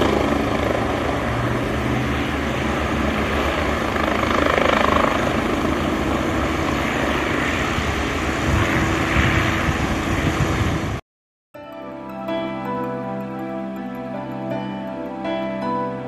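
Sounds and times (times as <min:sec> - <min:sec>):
helicopter turbine and rotors: 0:00.0 - 0:11.0.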